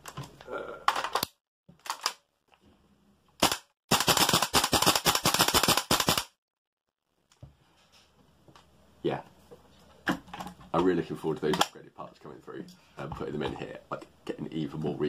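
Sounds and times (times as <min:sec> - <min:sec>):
airsoft rifle firing: 0:03.4 - 0:06.3.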